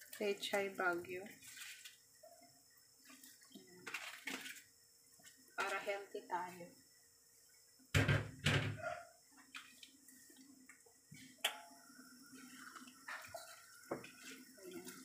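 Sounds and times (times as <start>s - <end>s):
liquid sloshing: 3.0s - 4.7s.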